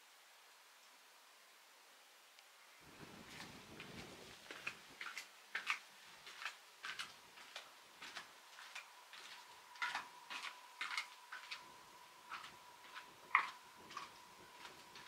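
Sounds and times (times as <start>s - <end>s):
footsteps on gritty stone floor: 3.2s - 11.7s, 12.3s - 15.0s.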